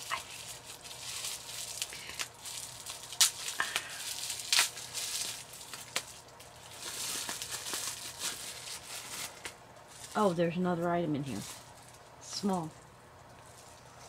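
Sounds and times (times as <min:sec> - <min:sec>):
bubble wrap snaps: 0:00.0 - 0:09.6
bubble wrap crinkling: 0:00.0 - 0:14.0.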